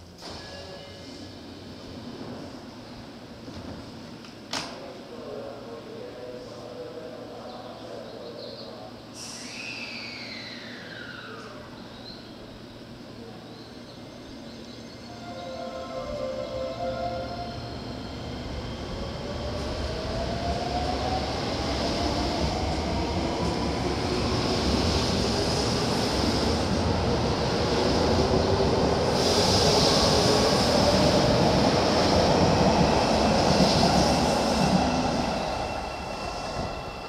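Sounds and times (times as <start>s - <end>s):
train wheel and running noise: 0.0s - 14.9s.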